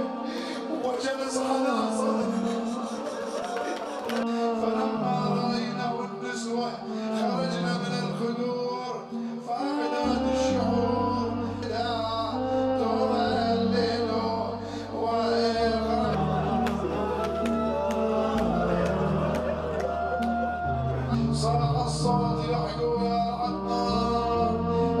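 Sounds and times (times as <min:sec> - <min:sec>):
man chanting: 0:00.0 - 0:25.0.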